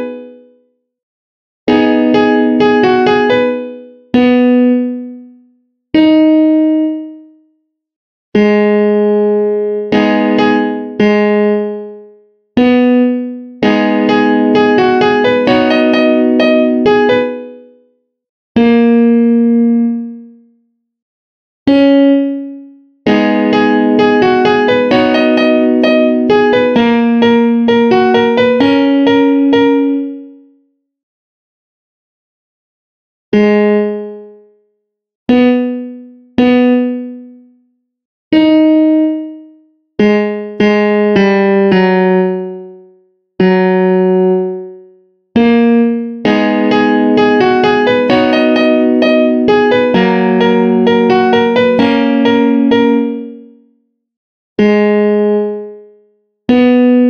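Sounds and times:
piano melody over chords: 0.0s - 0.5s, 1.7s - 5.3s, 6.0s - 7.3s, 8.4s - 17.7s, 21.7s - 30.4s, 33.3s - 34.5s, 35.3s - 37.4s, 38.4s - 42.8s, 43.4s - 44.8s, 45.4s - 53.6s, 54.6s - 55.8s, 56.5s - 57.0s.

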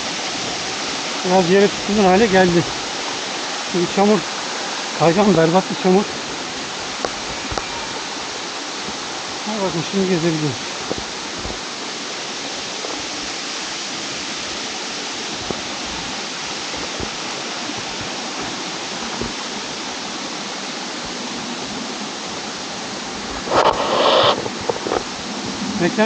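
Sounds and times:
waterfall roar: 0.0s - 26.0s
short burst of noise: 23.4s - 25.0s.

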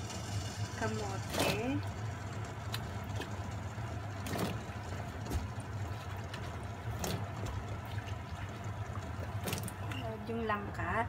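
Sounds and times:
coconut milk boiling: 0.0s - 11.0s
low hum: 0.0s - 11.0s
food plopping into liquid: 1.3s - 10.0s.

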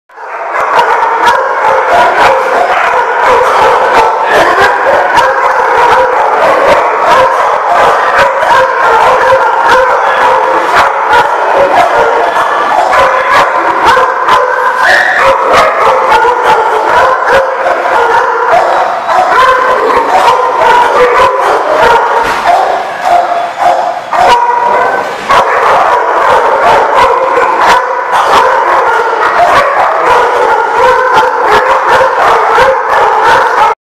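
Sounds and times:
pack of dogs barking: 0.1s - 33.8s.

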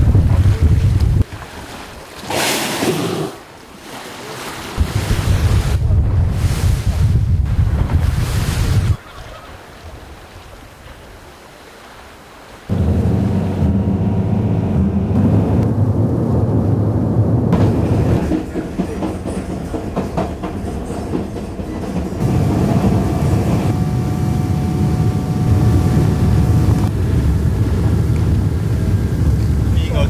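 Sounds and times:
train rumbling: 12.7s - 30.0s
wheels clattering on rails: 17.6s - 23.8s.

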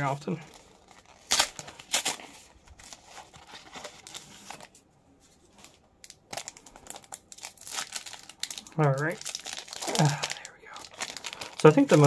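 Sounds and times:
foil wrappers crinkling: 5.5s - 12.0s.

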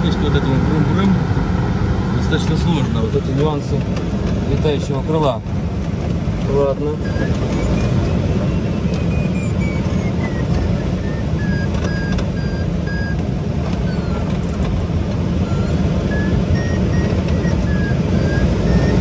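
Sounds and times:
variometer beeping: 6.4s - 19.0s.

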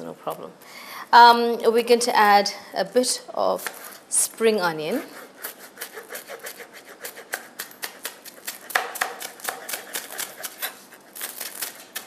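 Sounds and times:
knife chopping on cutting board: 7.2s - 10.7s.

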